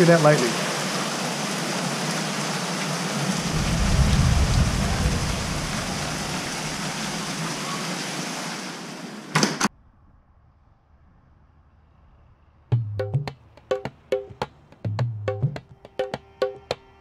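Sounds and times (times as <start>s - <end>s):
heavy rain pouring: 0.0s - 9.3s
thunder rumbling: 3.2s - 7.7s.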